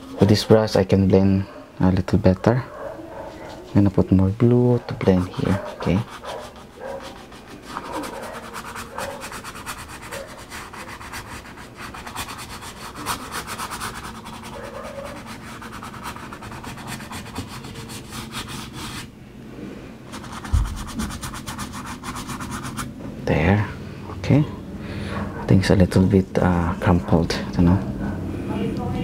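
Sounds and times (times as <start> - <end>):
brush scrubbing canvas: 0.0 - 0.9, 3.0 - 4.1, 4.8 - 19.1, 20.1 - 22.9
soft low thump: 20.5 - 20.9.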